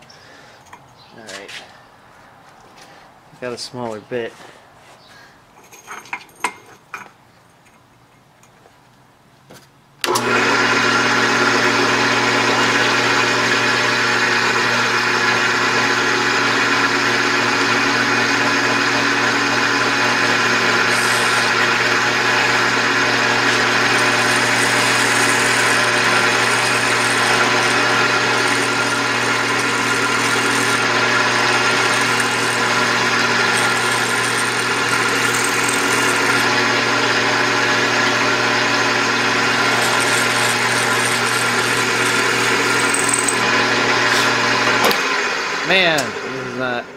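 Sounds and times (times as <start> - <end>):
drill press drilling into iron: 10.1 - 10.5, 15.5 - 45.0.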